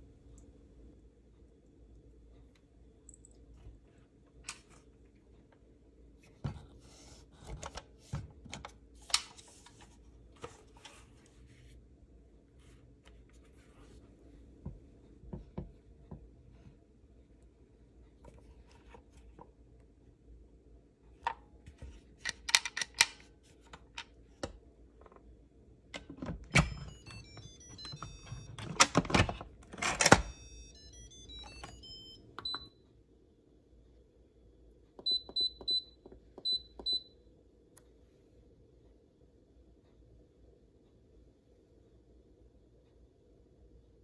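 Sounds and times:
control panel beeps: 0:26.5 - 0:29.0, 0:30.0 - 0:32.8, 0:35.0 - 0:37.2.

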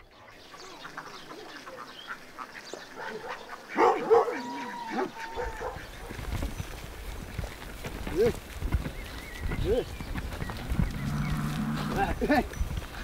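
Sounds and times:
animal calls: 0:00.5 - 0:06.5, 0:09.5 - 0:12.3.

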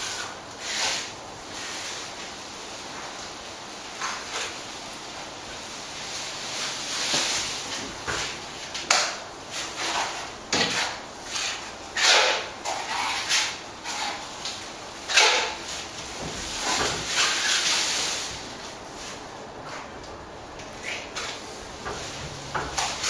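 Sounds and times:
trowel scraping render: 0:00.0 - 0:02.1, 0:09.5 - 0:15.9, 0:16.6 - 0:18.2.

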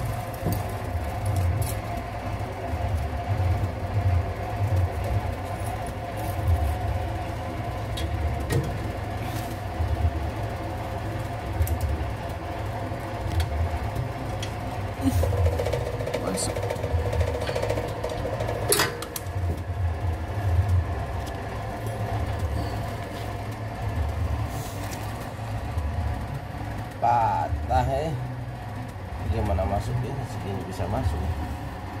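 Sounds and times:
car engine low uneven throbbing: 0:00.0 - 0:32.0.

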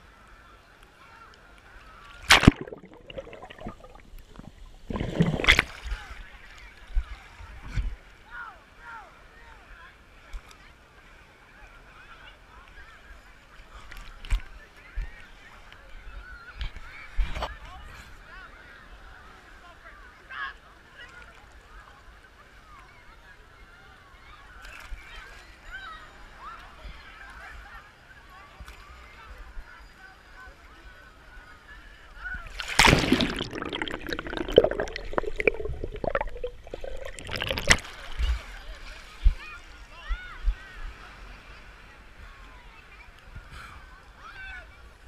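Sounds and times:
water splash: 0:02.1 - 0:06.2, 0:32.5 - 0:38.4
water sloshing and gurgling: 0:02.1 - 0:06.4, 0:32.5 - 0:38.5
distant crowd voices and shouts: 0:38.0 - 0:45.0.

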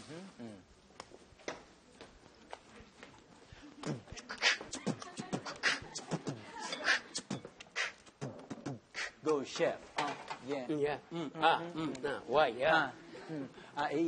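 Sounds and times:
beatboxing: 0:03.8 - 0:09.8.

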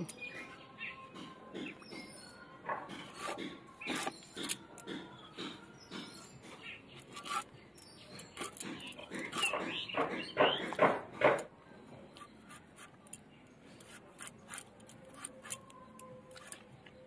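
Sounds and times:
blade slicing fruit: 0:03.0 - 0:05.0, 0:08.2 - 0:11.0, 0:13.8 - 0:15.7.

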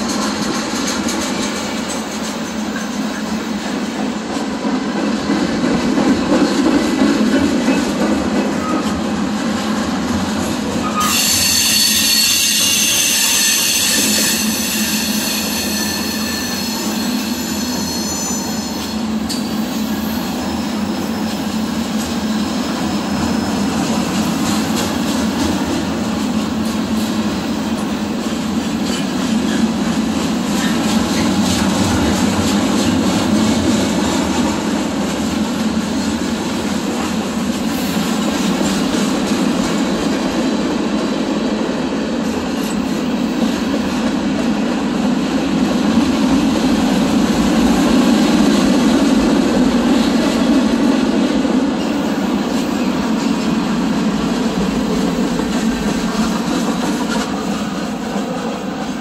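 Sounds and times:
freight train wheels rumbling: 0:00.0 - 0:59.0
high wheel squeal: 0:10.8 - 0:21.4, 0:22.5 - 0:23.8.

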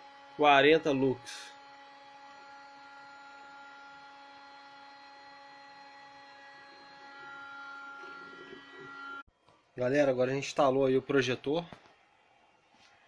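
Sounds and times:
electrical hum with whine: 0:00.0 - 0:09.3.

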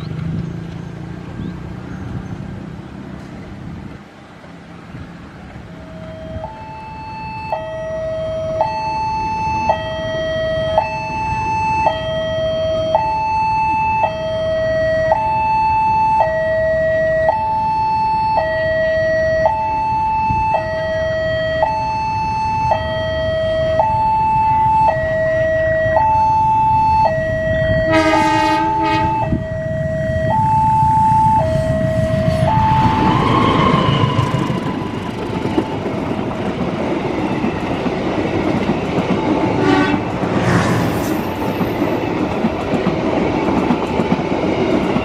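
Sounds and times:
train rumble: 0:00.0 - 0:07.0, 0:22.6 - 0:45.0
level crossing two-tone alarm: 0:05.8 - 0:35.8.

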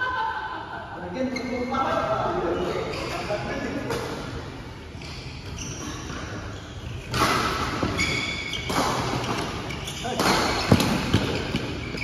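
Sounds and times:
sneaker squeaks: 0:01.2 - 0:12.0
racket hitting shuttlecock: 0:07.0 - 0:12.0.

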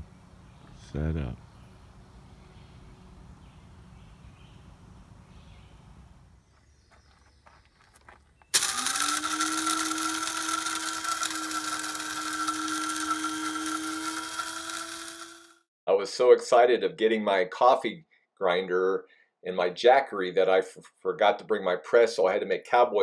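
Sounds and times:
electric coffee grinder running: 0:08.6 - 0:15.7.

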